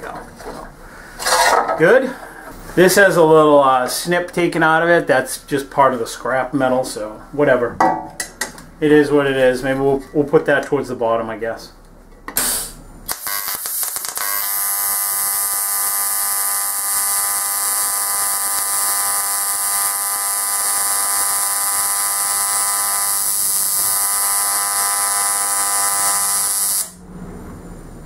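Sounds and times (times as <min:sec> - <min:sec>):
welding arc buzzing: 0:12.4 - 0:27.1.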